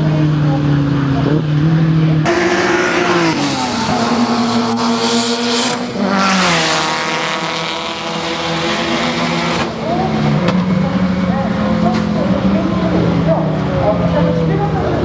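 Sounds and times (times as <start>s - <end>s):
race car engines: 0.0s - 15.0s.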